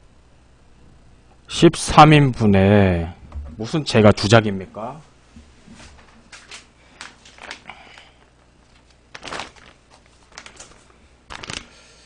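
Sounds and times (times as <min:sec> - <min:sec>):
plastic packaging rustling: 0:05.9 - 0:11.9.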